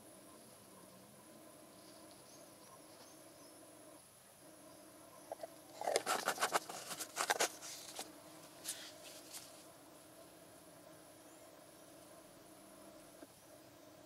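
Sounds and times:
screw cap clicking and scraping: 0:05.8 - 0:08.0.

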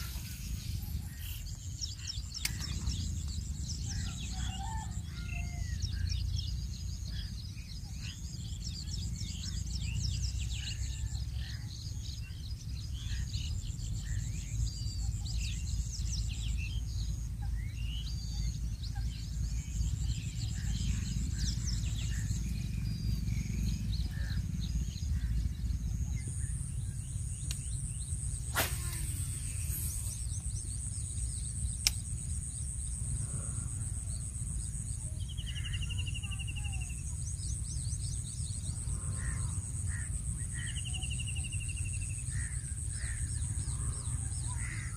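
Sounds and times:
steady high whine: 0:00.0 - 0:05.2, 0:18.4 - 0:44.9
small birds chirping: 0:00.0 - 0:44.9
steady low rumble: 0:00.0 - 0:44.9
sharp clicks: 0:31.8 - 0:32.1.

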